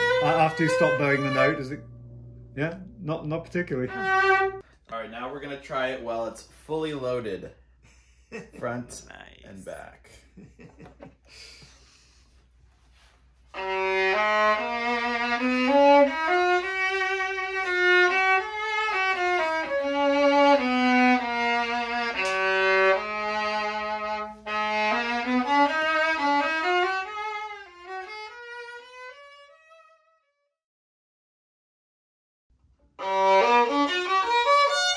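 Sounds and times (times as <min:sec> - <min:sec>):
violin fiddle tune: 0:00.0 - 0:06.2, 0:13.5 - 0:30.2, 0:33.0 - 0:34.9.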